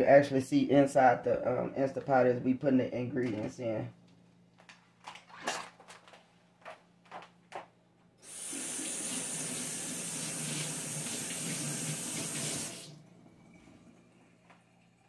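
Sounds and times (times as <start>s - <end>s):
water running into metal sink: 8.2s - 13.0s.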